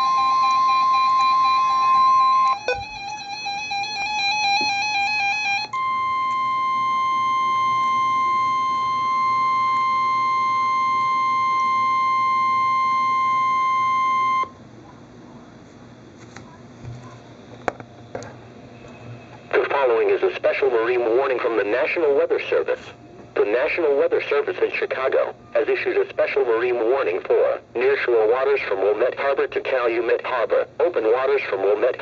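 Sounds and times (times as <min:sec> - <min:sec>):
steady alarm tone: 0:00.0 - 0:14.6
warbling electronic alarm: 0:00.0 - 0:14.6
long steady warning tone: 0:00.0 - 0:15.1.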